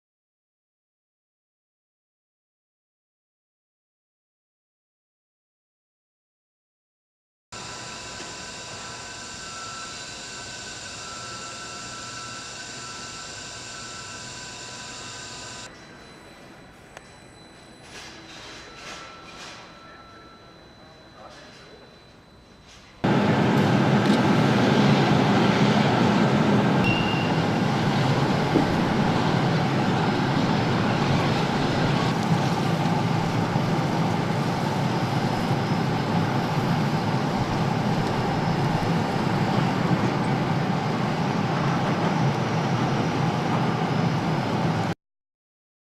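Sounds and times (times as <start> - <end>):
loud mechanical roar: 23.0 - 44.9.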